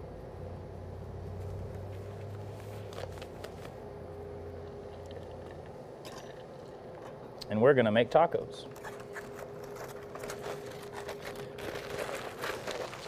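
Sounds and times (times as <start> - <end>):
steady low hum: 0.0 - 13.0
glove rustling: 1.3 - 3.8, 8.9 - 13.0.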